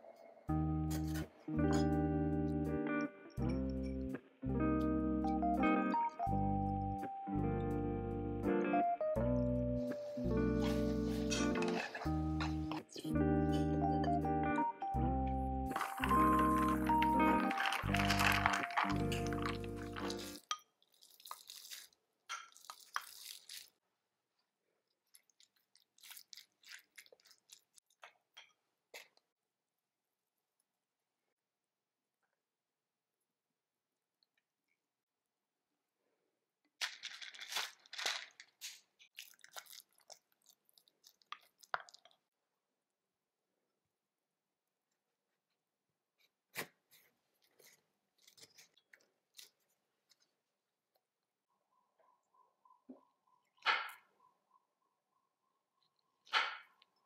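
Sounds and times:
wooden spoon stirring squishes: 10.5 - 13.0, 15.7 - 28.4, 36.9 - 42.3, 46.9 - 50.4
masher squishing eggs in bowl: 15.8 - 23.8, 24.9 - 28.1, 36.8 - 42.3.

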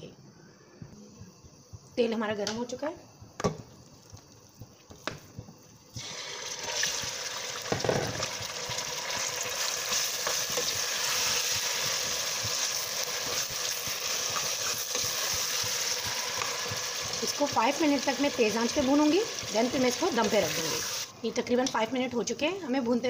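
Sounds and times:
meat sizzling in hot oil: 5.5 - 21.1
spatula stirring in pot: 8.7 - 19.6.

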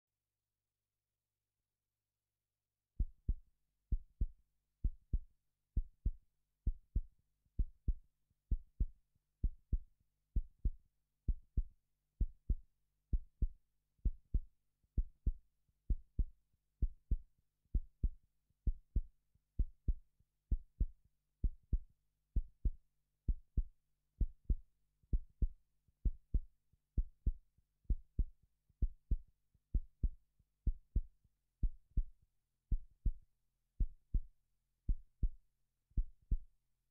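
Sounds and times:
heartbeat thumps: 15.0 - 18.1, 22.4 - 26.4, 27.0 - 32.1, 32.7 - 33.2, 33.8 - 34.3, 34.9 - 35.4, 36.0 - 36.5.

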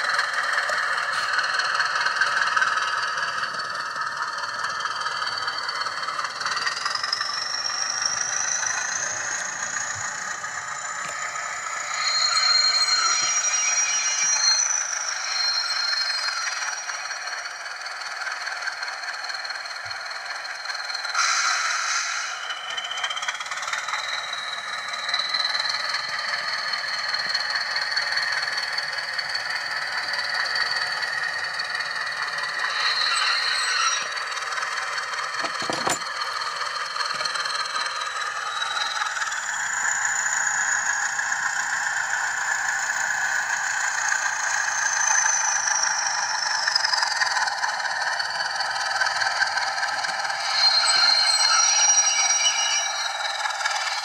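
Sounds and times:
model train diesel engine sound: 0.0 - 54.0
model train rattling on track: 0.0 - 54.0
high whistle falling in pitch: 7.4 - 17.1, 50.4 - 53.2.

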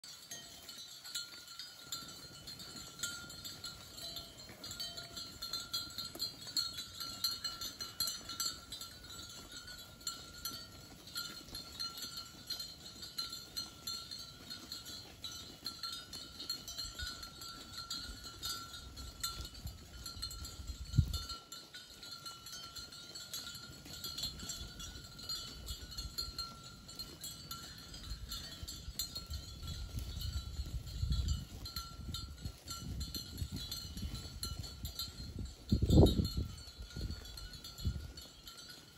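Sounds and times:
cowbells ringing: 0.0 - 38.9.

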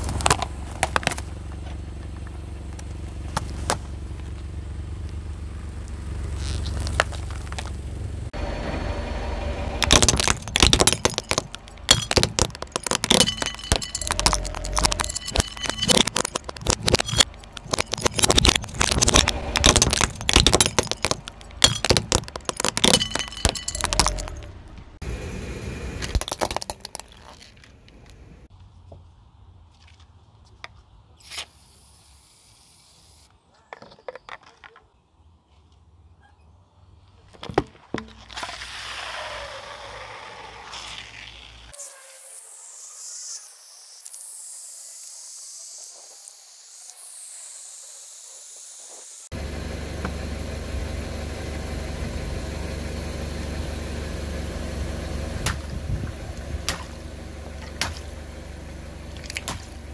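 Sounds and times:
plastic cracking under car tyre: 0.0 - 4.4, 6.1 - 7.9, 9.8 - 13.3, 14.4 - 23.0.

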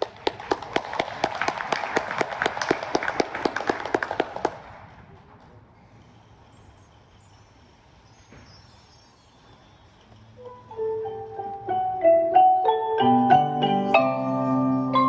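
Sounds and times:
nearby person clapping: 0.0 - 4.8
audience applauding: 0.0 - 4.9.

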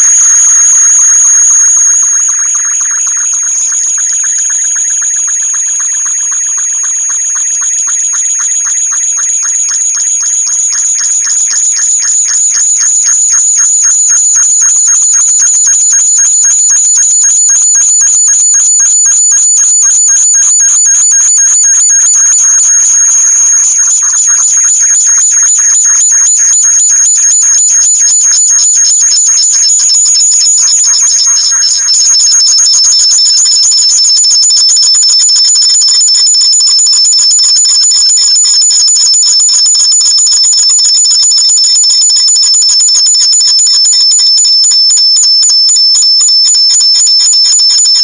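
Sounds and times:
pulsing feedback squeal: 20.4 - 44.8.

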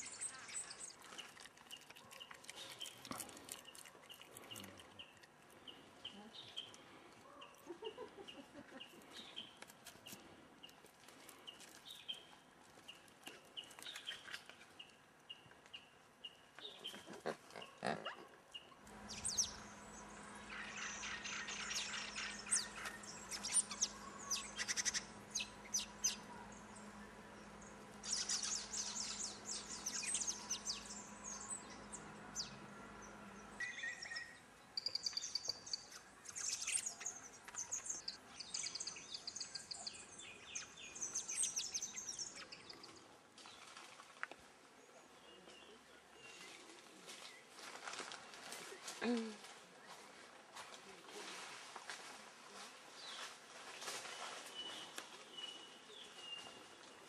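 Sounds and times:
birds chirping: 0.0 - 43.7
steady low hum: 18.8 - 43.2.

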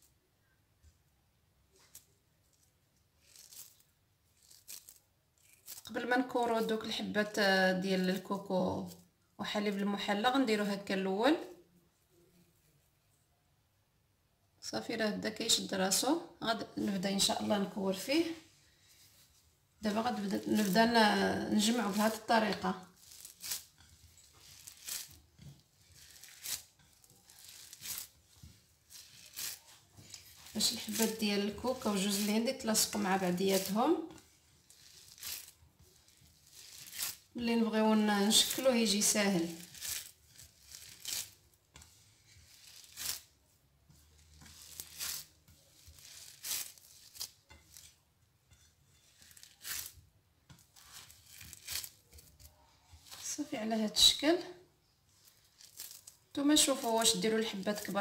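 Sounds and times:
hands squeezing crumbly mix: 3.2 - 6.0, 19.9 - 21.0, 21.6 - 37.4, 38.0 - 43.3, 44.0 - 47.9, 49.1 - 50.0, 50.6 - 53.4, 55.1 - 58.0.

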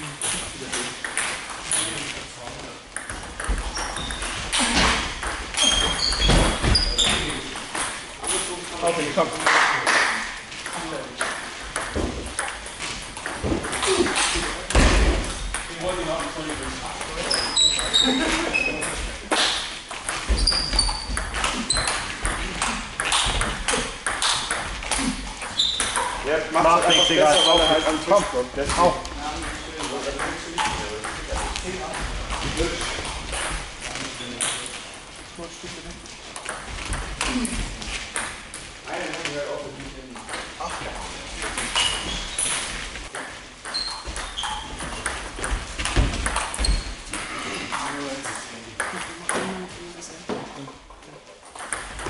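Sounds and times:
table tennis balls clicking: 0.2 - 2.0, 2.9 - 8.7, 9.3 - 27.0, 36.3 - 38.7, 40.1 - 49.6, 51.4 - 52.0.

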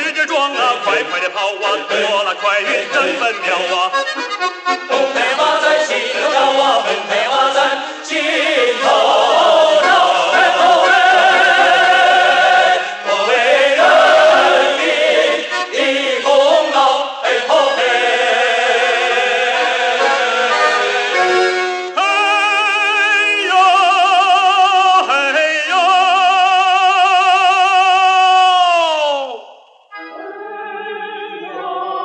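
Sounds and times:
choral operatic singing: 0.2 - 4.1, 4.8 - 32.0
instrumental accompaniment: 0.5 - 23.8, 29.9 - 32.0.

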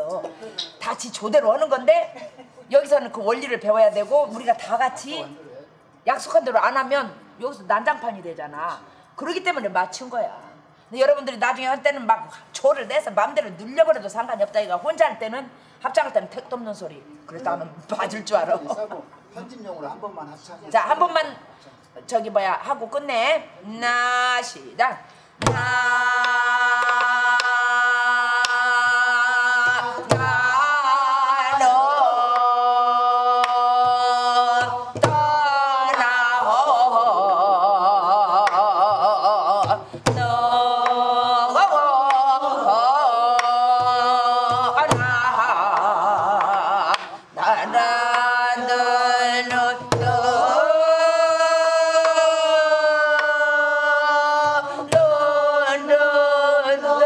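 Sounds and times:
person singing vocal scat: 25.4 - 56.3.

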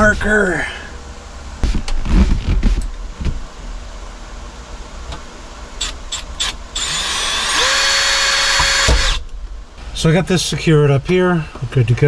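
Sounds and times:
cordless drill motor whine: 5.8 - 9.2.

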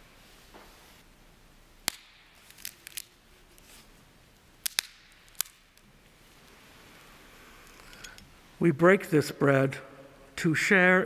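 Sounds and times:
wafer snapping with crisp cracks: 1.8 - 3.7, 4.6 - 5.9.

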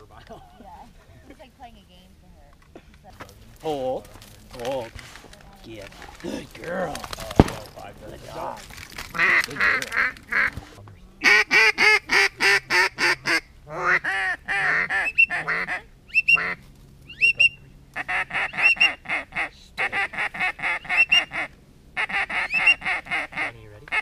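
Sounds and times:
duck quacking: 9.1 - 10.6, 11.2 - 24.0.

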